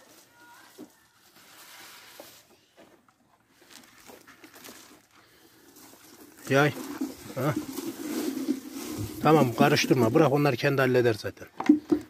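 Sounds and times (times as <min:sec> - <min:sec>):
grain feed sliding into trough: 0:05.7 - 0:10.4.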